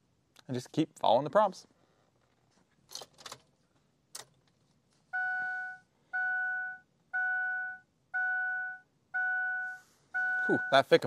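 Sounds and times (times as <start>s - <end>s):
dashboard warning chime: 5.1s - 11.0s.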